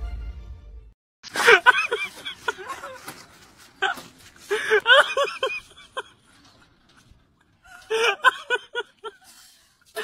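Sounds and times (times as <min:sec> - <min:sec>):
high-pitched cackling laughter: 0:01.3 - 0:03.2.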